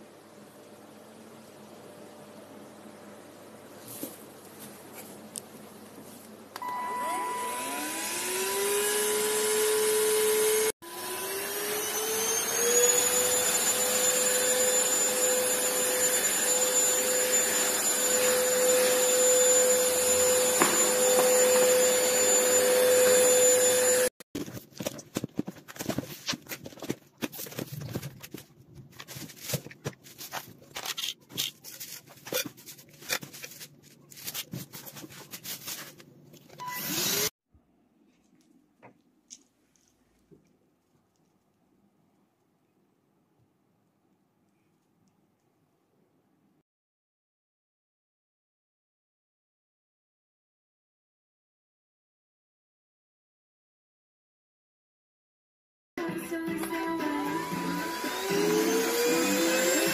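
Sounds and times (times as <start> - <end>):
vacuum motor whining: 6.6 - 24.1, 57.1 - 59.9.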